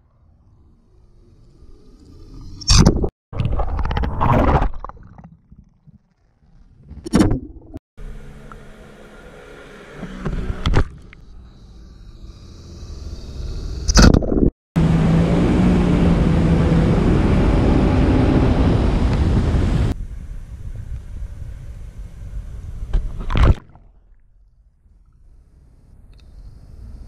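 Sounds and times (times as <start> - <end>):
jet ski engine running: 14.8 - 22.9.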